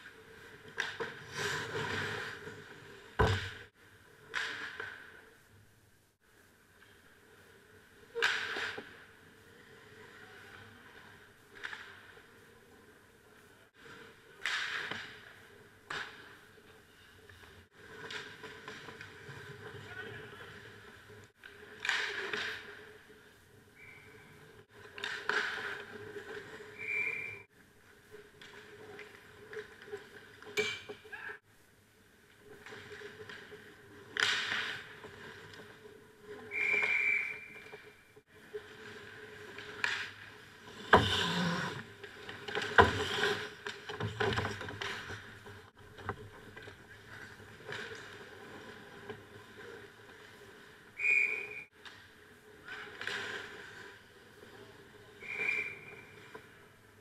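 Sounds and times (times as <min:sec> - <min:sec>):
skate blades scraping ice: 0:00.0 - 0:03.2, 0:32.6 - 0:45.4, 0:46.4 - 0:56.9.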